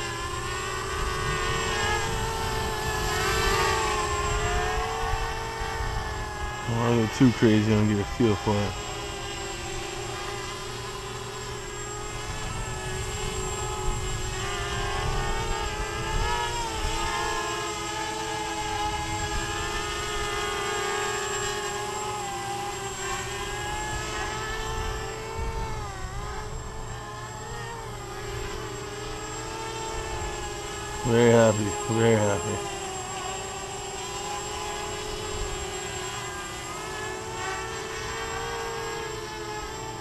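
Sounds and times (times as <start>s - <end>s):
quadcopter motors whining: 0.0s - 40.0s
wind on microphone: 0.8s - 6.4s, 12.2s - 17.3s, 23.9s - 26.8s.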